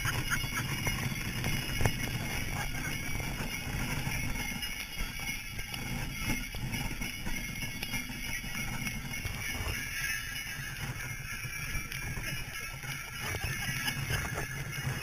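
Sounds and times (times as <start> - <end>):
sleigh bells jingling: 0.0 - 15.0.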